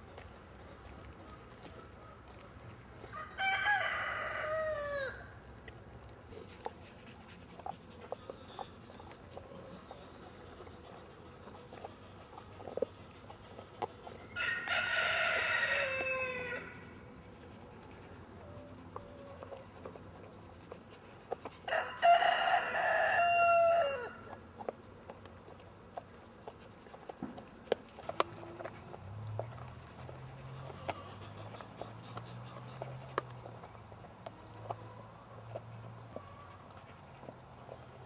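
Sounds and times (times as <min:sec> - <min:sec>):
dog chewing: 0:00.0 - 0:38.0
rooster crowing: 0:03.1 - 0:05.3, 0:14.4 - 0:16.8, 0:21.7 - 0:24.2.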